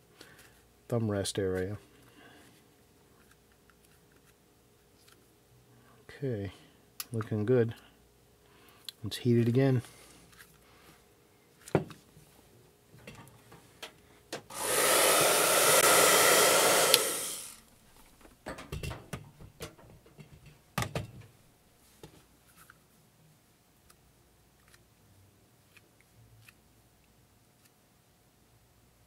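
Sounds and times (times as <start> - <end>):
hot-air blower running: 14.4 - 17.6
knocks and clicks of handling: 18.2 - 21.4.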